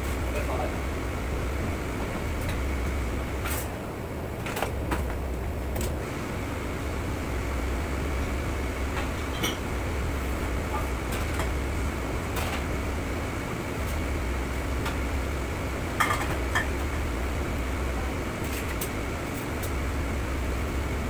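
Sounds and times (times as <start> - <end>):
ventilation hum: 0.0 - 21.0
pots and pans clattering: 16.0 - 16.8.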